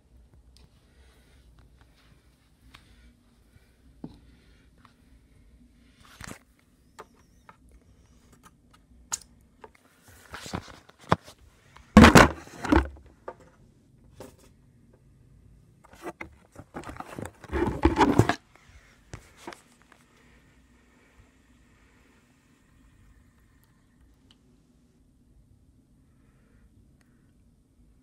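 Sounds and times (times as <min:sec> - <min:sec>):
phone being handled rustling: 0:15.9 - 0:18.4.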